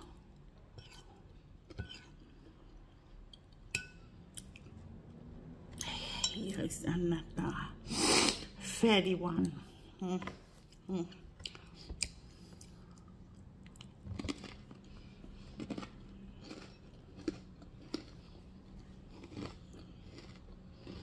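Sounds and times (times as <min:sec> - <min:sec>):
faint steady hum: 0:00.0 - 0:21.0
chewing fatty meat: 0:11.4 - 0:21.0.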